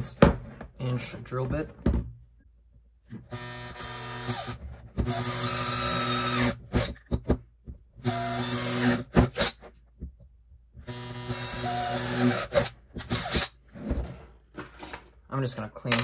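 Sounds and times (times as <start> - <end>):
cordless drill whining: 3.3 - 7.0, 8.0 - 9.5, 10.9 - 13.5.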